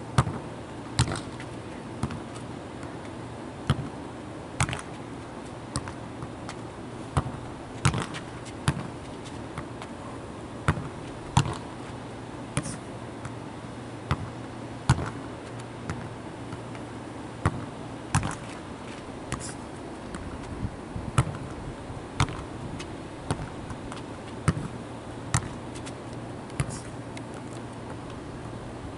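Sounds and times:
ball bouncing on asphalt: 0.2s - 0.4s, 1.0s - 2.9s, 3.6s - 4.0s, 4.6s - 10.0s, 10.6s - 11.8s, 12.6s - 13.4s, 14.1s - 16.8s, 17.4s - 18.6s, 21.1s - 21.6s, 22.2s - 28.2s
foot kicking ball: 5.7s - 9.9s, 10.7s - 11.7s, 22.2s - 24.7s, 25.3s - 26.0s.

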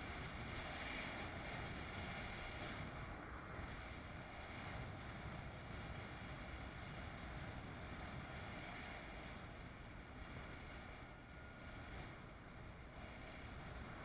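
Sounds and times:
wind noise on microphone: 0.0s - 14.0s.

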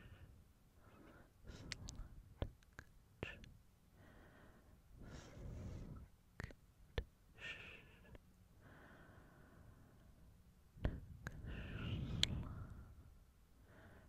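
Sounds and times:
sharp mouth clicks: 1.7s - 3.5s, 6.4s - 7.1s, 12.1s - 12.5s
soft breathy exhales: 4.0s - 6.1s, 10.9s - 13.1s.

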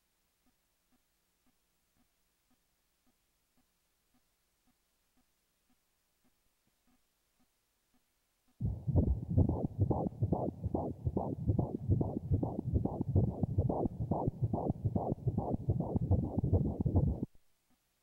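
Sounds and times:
fetal heartbeat whooshing pulse: 8.6s - 17.3s.

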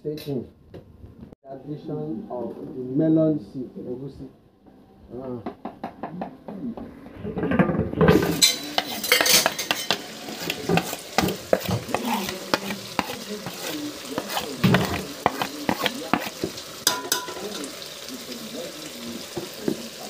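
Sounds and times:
metal spoon scraping a pot: 8.1s - 17.4s
food sizzling in a pot: 8.1s - 20.0s.

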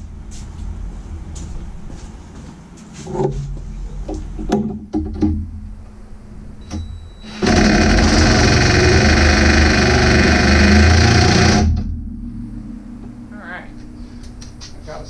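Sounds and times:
impact wrench hammering: 7.4s - 11.8s.

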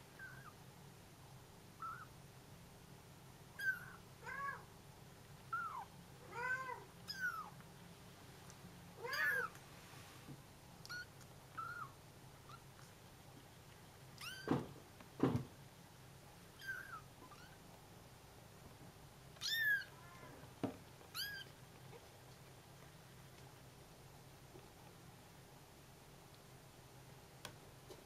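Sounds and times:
kittens meowing: 0.2s - 0.6s, 1.8s - 2.1s, 3.6s - 4.7s, 5.5s - 7.6s, 9.0s - 9.6s, 10.8s - 12.7s, 14.2s - 14.6s, 16.6s - 17.6s, 19.4s - 20.4s, 21.1s - 22.1s.

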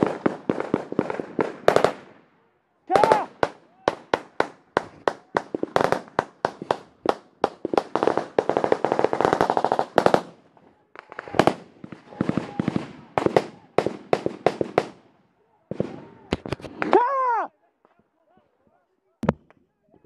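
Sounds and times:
automatic gunfire bursts: 0.0s - 2.1s, 3.0s - 10.4s.

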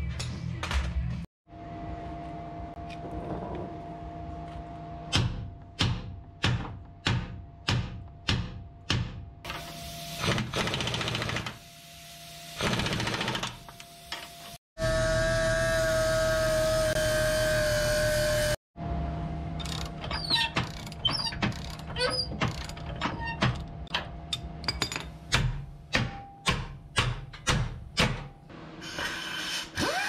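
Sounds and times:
hammer striking steel: 24.7s - 28.4s.

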